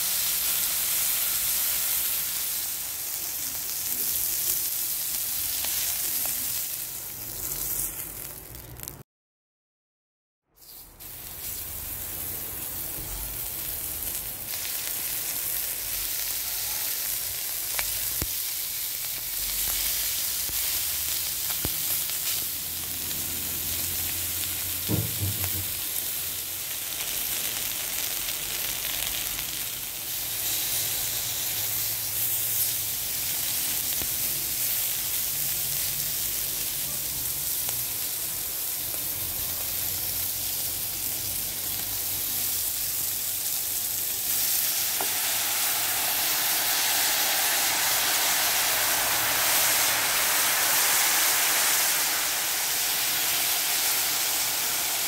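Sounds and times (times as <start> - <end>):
meat sizzling in a pot: 0.0 - 9.0, 10.6 - 55.0
low knock: 24.9 - 25.8.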